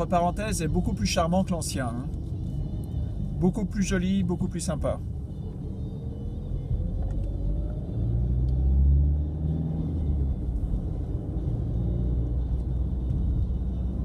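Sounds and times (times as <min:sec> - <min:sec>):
car driving on road: 0:00.0 - 0:14.0.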